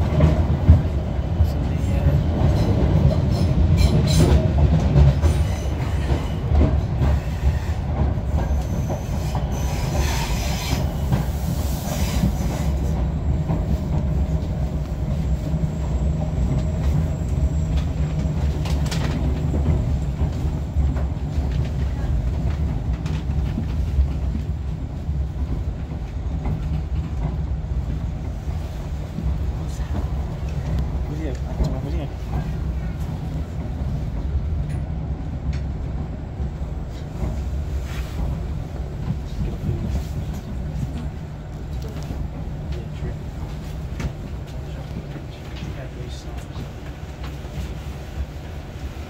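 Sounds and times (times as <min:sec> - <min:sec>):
train rumbling on track: 0:00.0 - 0:49.0
train wheels squealing: 0:05.1 - 0:13.7.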